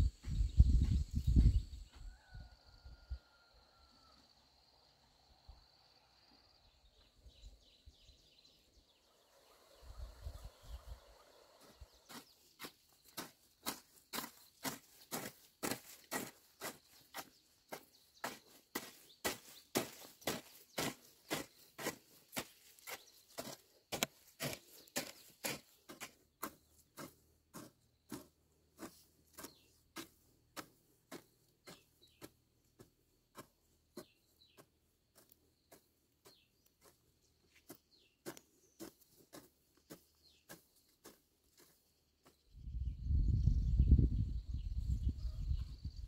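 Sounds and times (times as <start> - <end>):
faint bird chirps: 0.0 - 12.7, 35.5 - 46.0
footsteps walking: 11.6 - 42.4.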